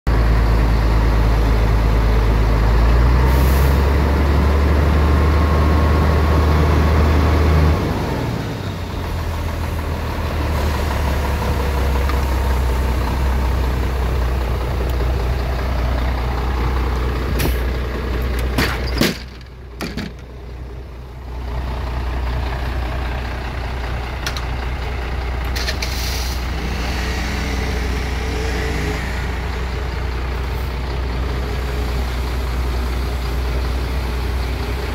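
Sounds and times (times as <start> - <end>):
diesel engine idling: 0.1 - 34.9.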